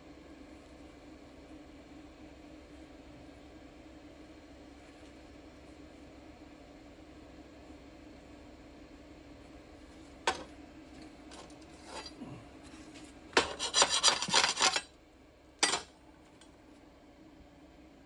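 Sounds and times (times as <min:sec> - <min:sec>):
steel bar scraping: 0:13.4 - 0:14.9.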